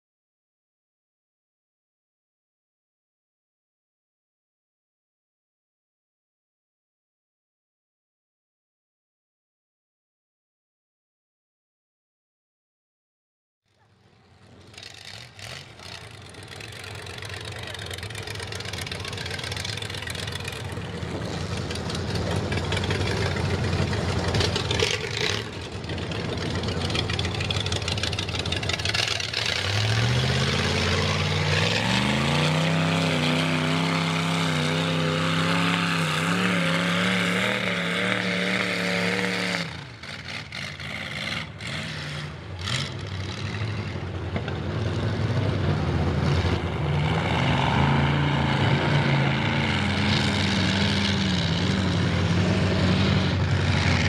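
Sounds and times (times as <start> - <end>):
engine revving hard: 17.5 - 44.0, 45.2 - 54.0.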